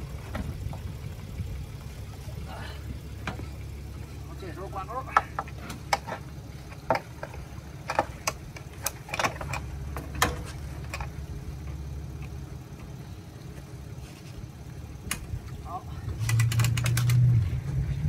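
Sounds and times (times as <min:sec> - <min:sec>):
low engine hum: 0:00.0 - 0:18.0
winch metal clicks and clanks: 0:03.2 - 0:13.7, 0:15.0 - 0:17.5.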